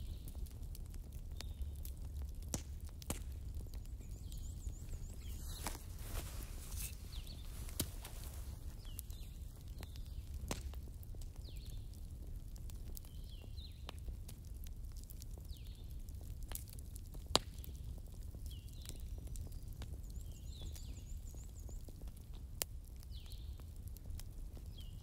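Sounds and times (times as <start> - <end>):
sharp fire pops: 0.0 - 14.4, 15.3 - 18.9
wood fire crackling: 0.0 - 25.0.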